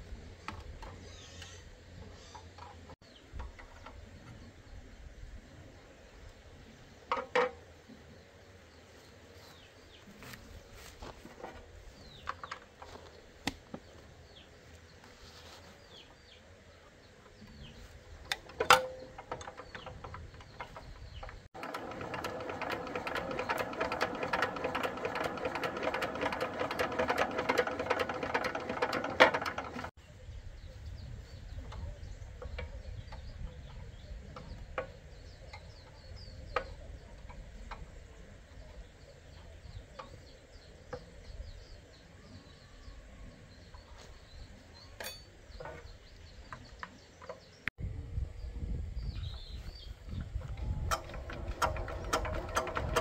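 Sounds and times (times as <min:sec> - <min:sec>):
birds chirping: 0:00.0 - 0:53.0
fast mechanical clicking: 0:18.3 - 0:29.9, 0:50.6 - 0:53.0
metallic clinks and knocks: 0:45.0 - 0:45.8.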